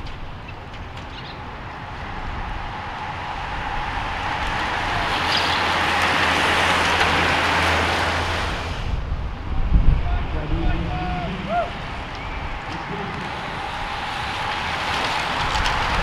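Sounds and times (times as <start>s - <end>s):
bicycles whooshing past: 0.0s - 16.0s.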